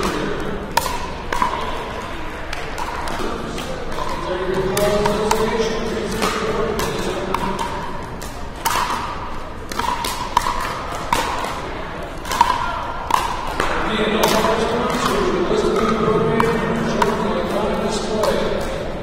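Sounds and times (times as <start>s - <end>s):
murmur of voices: 0.0s - 19.0s
paddles striking plastic ball: 2.6s - 17.6s.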